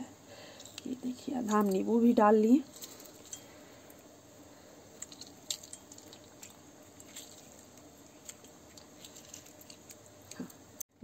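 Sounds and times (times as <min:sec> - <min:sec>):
juice drips: 0:04.9 - 0:10.8
lemon squishing: 0:04.9 - 0:10.8.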